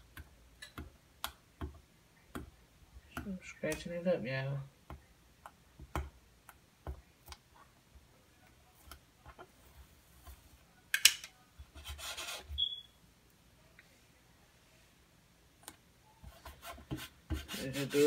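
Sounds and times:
brief squeak: 0:12.5 - 0:13.0
hands rubbing on decals: 0:16.3 - 0:18.0.

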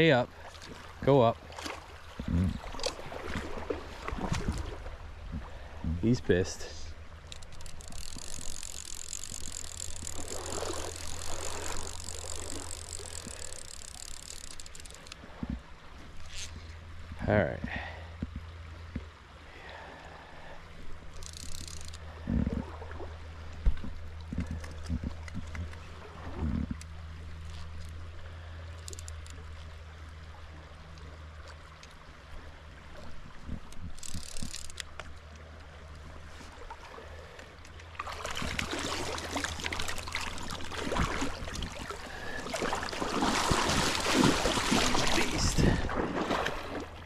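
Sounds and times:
creek water running: 0:00.0 - 0:47.0
fish thrashing and splashing: 0:07.2 - 0:15.2, 0:37.8 - 0:47.0
creek rushing: 0:37.9 - 0:47.0.

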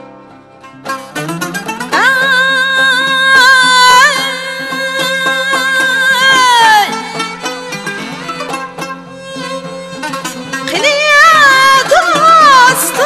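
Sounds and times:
plucked long-necked lutes: 0:00.0 - 0:13.0
woman singing with vibrato: 0:01.9 - 0:07.2, 0:10.7 - 0:13.0.

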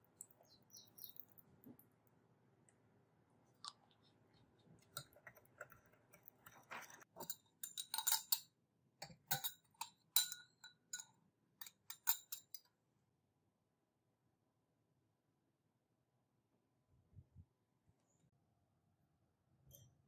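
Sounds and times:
glassware clinking: 0:07.2 - 0:08.4, 0:09.0 - 0:12.6.

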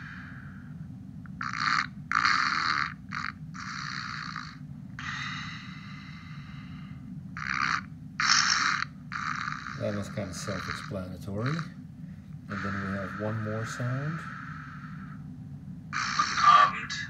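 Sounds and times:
raspy snoring from small speaker: 0:01.4 - 0:06.4, 0:07.4 - 0:11.8, 0:12.5 - 0:15.2.

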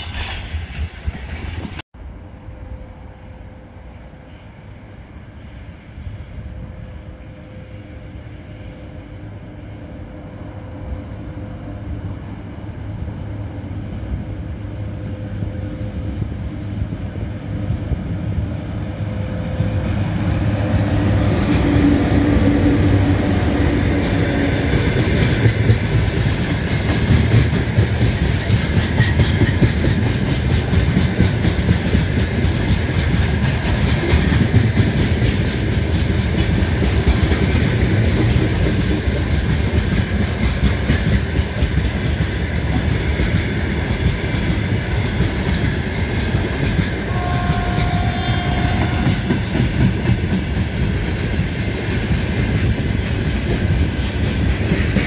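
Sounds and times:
train wheels clickety-clack: 0:00.0 - 0:01.8, 0:19.0 - 0:55.0
electric locomotive hum: 0:00.0 - 0:55.0.

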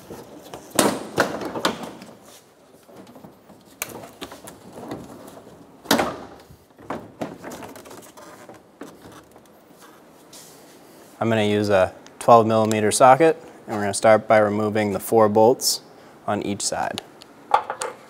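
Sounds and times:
plastic cover clunking and rattling: 0:00.0 - 0:02.2, 0:02.9 - 0:09.5.

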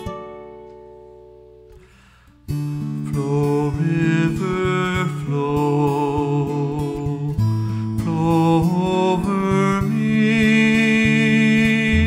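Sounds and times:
acoustic guitar: 0:00.0 - 0:12.0
man singing: 0:02.8 - 0:12.0.

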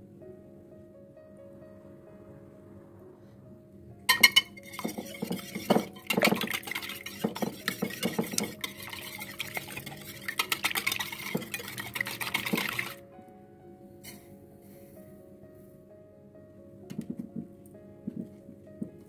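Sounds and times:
eggs sloshing: 0:04.1 - 0:13.0
whisk clinking against glass: 0:04.1 - 0:13.0.

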